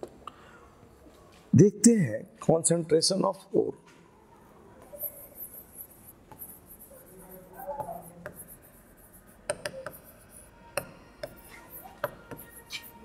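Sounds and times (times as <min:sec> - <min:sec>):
pen writing by hand: 0:04.8 - 0:13.0
sharp pen taps: 0:09.4 - 0:10.1, 0:10.8 - 0:12.9.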